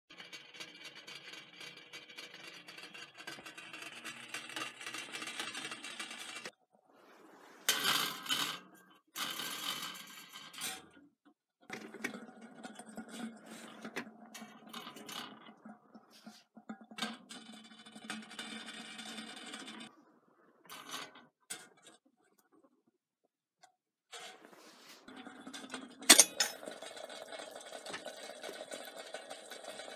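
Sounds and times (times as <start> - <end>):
kettle bubbling on burner: 11.7 - 17.2, 24.3 - 29.9.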